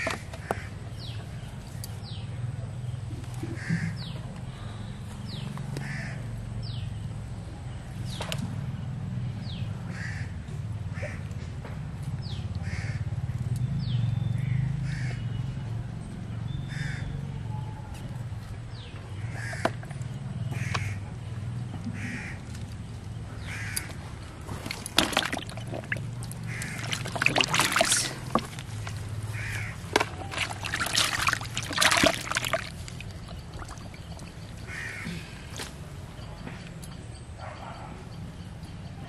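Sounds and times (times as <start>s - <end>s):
crows cawing: 3.6s - 4.0s, 5.8s - 6.3s, 9.9s - 10.4s, 12.6s - 13.0s, 16.7s - 17.1s, 19.2s - 19.8s, 20.5s - 21.0s, 22.0s - 22.5s, 23.4s - 24.0s, 26.4s - 27.9s, 29.3s - 30.5s, 34.6s - 35.4s.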